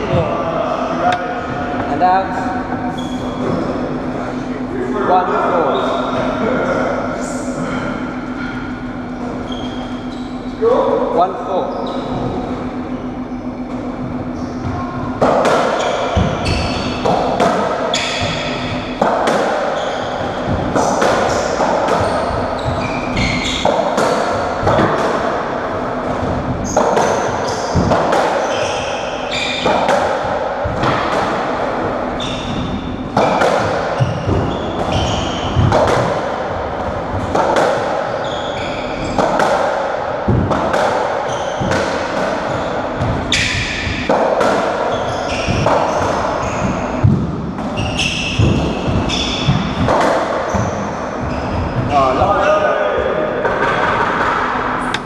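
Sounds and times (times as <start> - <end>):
shoe squeaks: 2.3 - 3.8, 5.6 - 6.4, 8.4 - 10.6, 11.5 - 15.0, 15.6 - 17.3, 17.9 - 19.0, 19.6 - 24.8, 26.6 - 29.9, 32.1 - 36.1, 37.9 - 39.4, 41.1 - 41.8, 42.4 - 44.0, 44.9 - 47.0, 47.7 - 49.9, 50.5 - 52.2
ball hits echoing in court: 15.2 - 25.5, 26.1 - 31.7, 32.4 - 38.2, 38.8 - 51.9.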